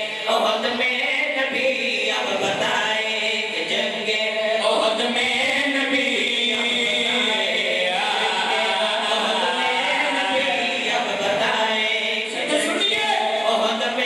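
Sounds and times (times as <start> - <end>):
men chanting a lament: 0.0 - 14.0.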